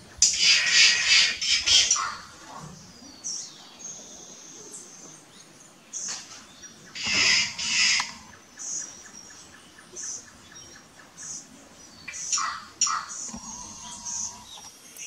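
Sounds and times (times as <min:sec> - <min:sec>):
jays giving harsh calls: 0:00.1 - 0:02.4, 0:06.9 - 0:08.8, 0:11.2 - 0:14.5.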